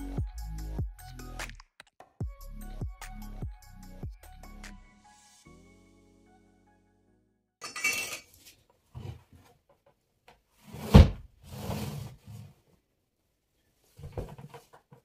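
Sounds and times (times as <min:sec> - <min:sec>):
background music: 0:00.0 - 0:07.6
chair thumping on floor: 0:10.8 - 0:11.2.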